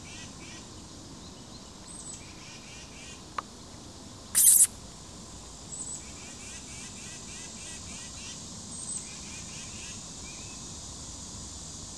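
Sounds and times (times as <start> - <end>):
high chirping: 4.4 - 4.7.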